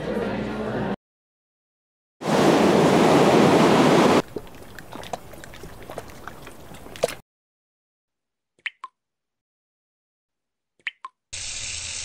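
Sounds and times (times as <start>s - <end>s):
quiet wash of water: 2.3s - 7.2s.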